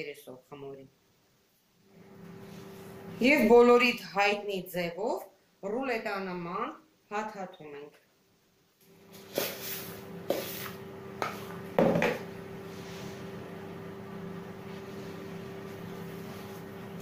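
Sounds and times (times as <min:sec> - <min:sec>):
steady low hum: 0:08.8 - 0:17.0.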